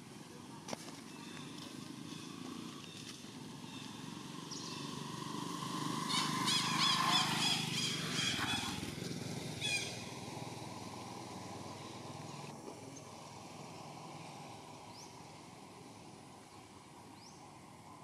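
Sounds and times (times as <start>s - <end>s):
motor vehicle passing: 0.0s - 18.0s
high chirping calls: 6.0s - 8.8s.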